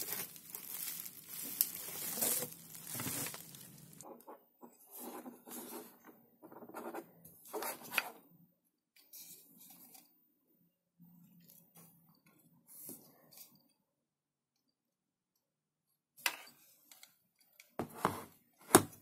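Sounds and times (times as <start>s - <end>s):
rustling and rubbing: 0.0s - 4.0s.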